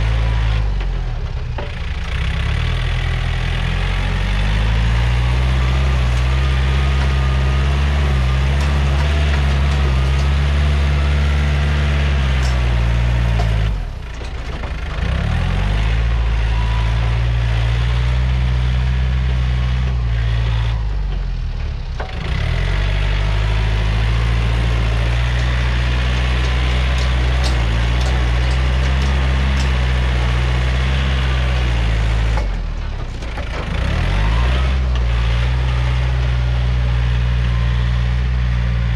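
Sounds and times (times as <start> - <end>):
tractor diesel engine running hard: 0.0 - 38.9.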